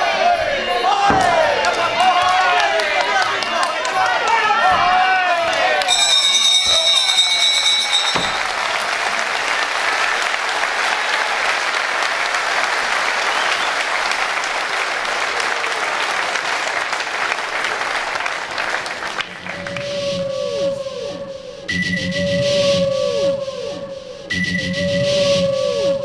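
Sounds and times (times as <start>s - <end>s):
crowd applauding: 0.0s - 20.2s.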